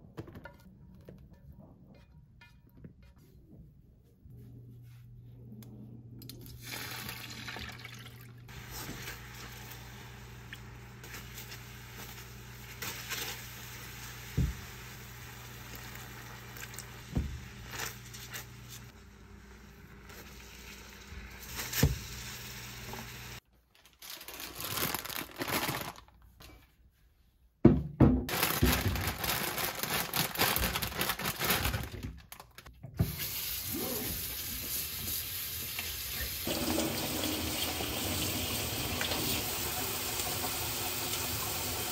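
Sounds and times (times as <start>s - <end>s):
tap water running into sink: 34.4s - 41.9s.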